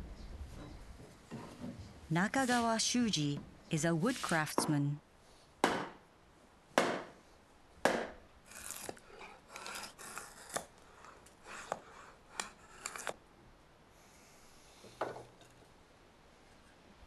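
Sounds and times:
mallet striking blade into log: 0:05.6 - 0:06.0, 0:06.8 - 0:07.2
drawknife shaving wood: 0:08.5 - 0:13.2.

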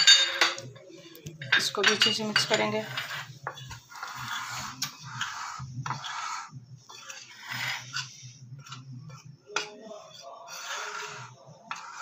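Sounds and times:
spoon clinking against glass: 0:00.0 - 0:00.7, 0:01.4 - 0:02.7
spoon scraping flour in bowl: 0:01.5 - 0:12.0.

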